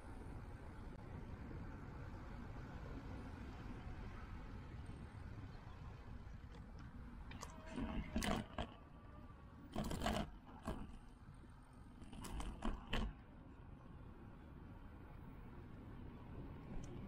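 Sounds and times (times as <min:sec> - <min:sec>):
wind and bicycle tyres rumbling: 0:00.0 - 0:17.0
bicycle clacking and rattling: 0:09.7 - 0:11.1, 0:12.0 - 0:13.2.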